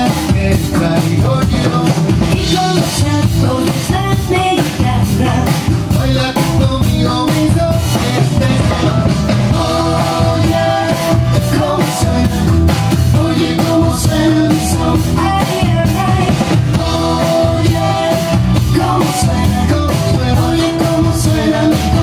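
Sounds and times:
drum kit beat with cymbals: 0.0 - 22.0
sustained melody line: 5.2 - 22.0.

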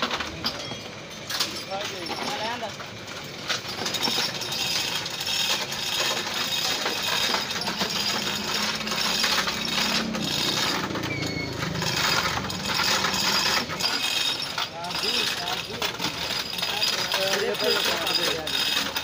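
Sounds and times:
chain hoist ratcheting: 0.0 - 19.0
chains rattling: 0.2 - 19.0.

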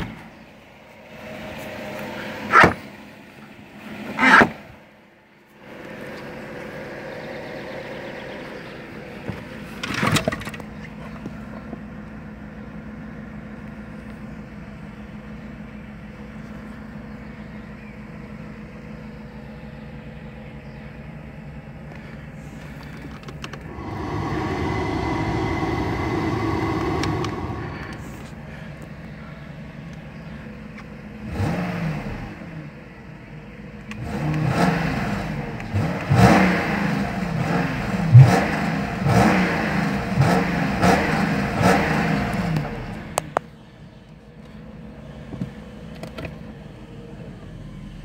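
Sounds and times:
car engine idling: 10.6 - 31.2.

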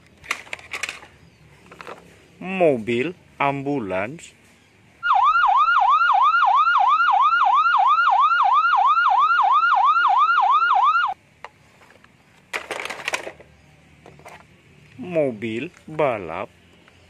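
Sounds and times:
plastic toy vehicles clattering: 0.0 - 2.2, 11.4 - 14.5
ambulance siren wailing: 5.0 - 11.2.

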